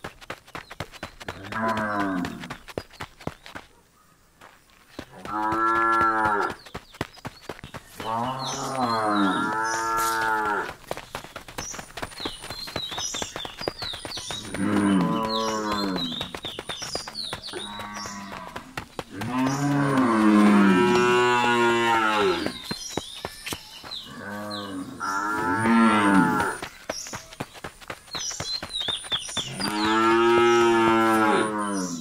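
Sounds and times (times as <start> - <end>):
small birds chirping: 0.0 - 32.0
cows mooing: 17.6 - 22.4, 29.6 - 31.6.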